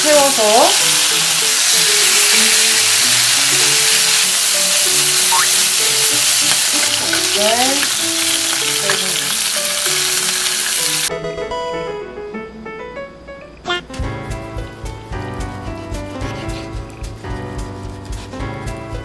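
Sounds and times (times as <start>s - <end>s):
steaks sizzling in hot oil: 0.0s - 11.1s
light background music: 0.0s - 19.0s.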